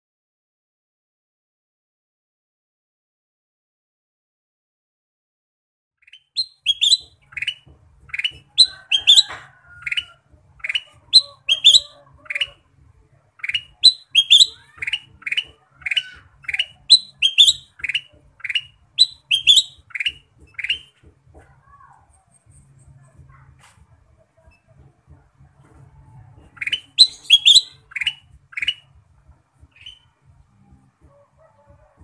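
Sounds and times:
bird singing sharp whistles: 6.1s - 7.6s, 10.6s - 12.5s, 13.4s - 20.9s, 26.6s - 28.9s.

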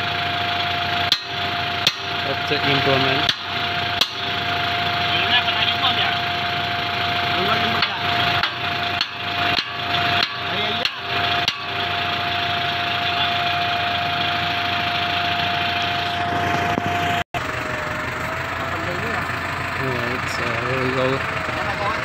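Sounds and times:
tractor engine idling: 0.0s - 22.0s
tractor running with implement: 0.0s - 22.0s
hammer striking steel tines: 0.2s - 16.1s.

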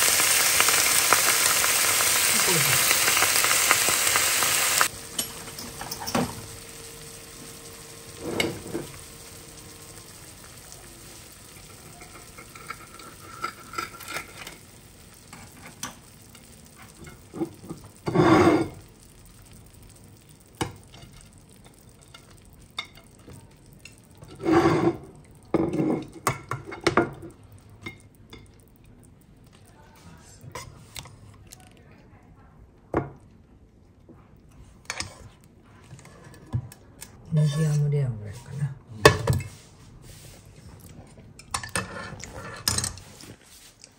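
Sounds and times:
steak sizzling in a pan: 0.0s - 30.1s
utensils clattering against pan: 5.1s - 6.5s, 11.5s - 14.6s, 41.4s - 43.1s.

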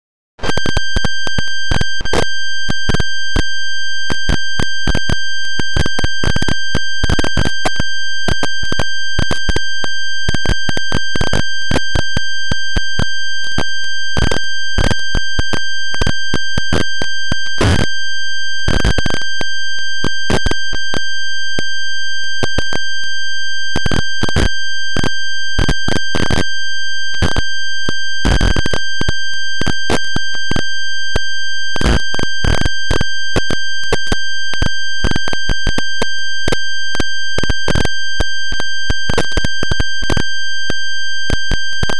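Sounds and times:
sharp crackles and clicks: 0.4s - 41.9s.

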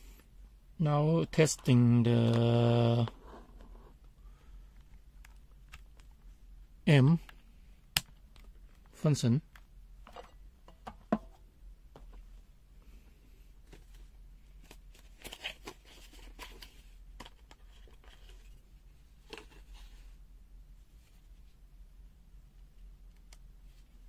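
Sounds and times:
low steady hum: 0.0s - 24.0s
multimeter leads clicking and handling: 4.7s - 6.2s, 7.3s - 8.9s.

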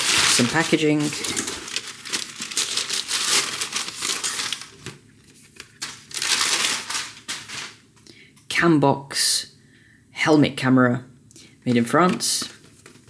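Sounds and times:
paper wrapping rustling: 0.0s - 7.8s, 12.1s - 13.0s.

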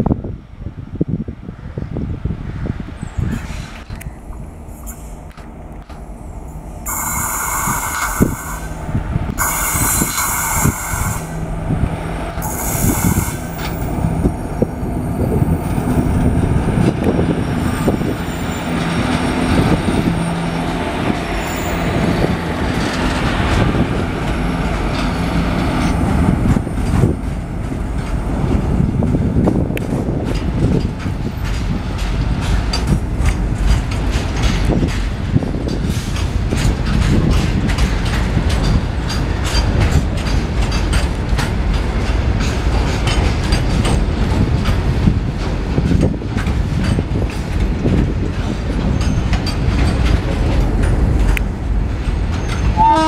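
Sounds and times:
locomotive horn blasts: 6.8s - 8.8s, 9.4s - 11.6s, 12.4s - 13.7s, 52.8s - 53.0s
wagon wheels clattering over rail joints: 18.0s - 53.0s.

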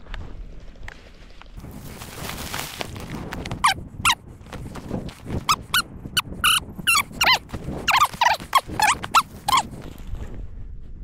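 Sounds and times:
dog whining: 6.4s - 9.8s.

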